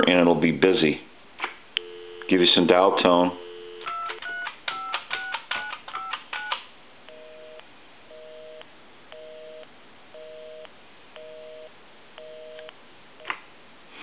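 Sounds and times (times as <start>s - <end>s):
telephone busy signal: 1.8s - 2.4s, 3.4s - 5.4s, 6.0s - 9.6s, 10.2s - 12.7s
touch-tone keypad tones: 3.4s - 9.6s.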